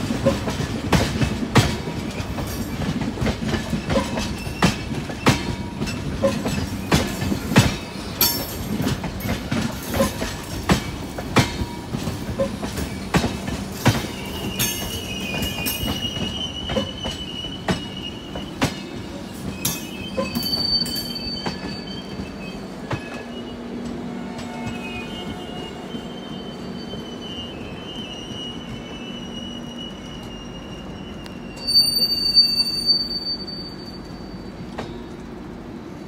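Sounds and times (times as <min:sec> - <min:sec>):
train wheels clacking over rail joints: 0:00.0 - 0:22.3
high wheel squeal: 0:13.8 - 0:23.7, 0:24.5 - 0:35.0.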